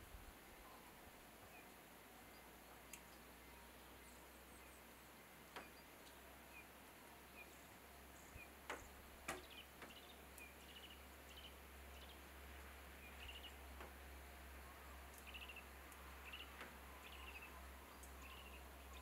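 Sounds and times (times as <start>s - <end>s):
faint outdoor hiss: 0.0s - 19.0s
high faint bird chirps: 15.1s - 19.0s.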